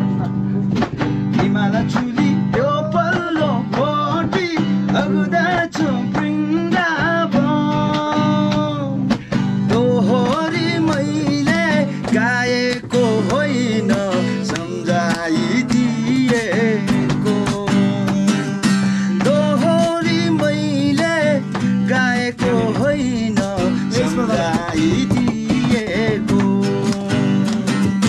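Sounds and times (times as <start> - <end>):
acoustic guitar: 0.0 - 28.0
man singing: 1.3 - 28.0.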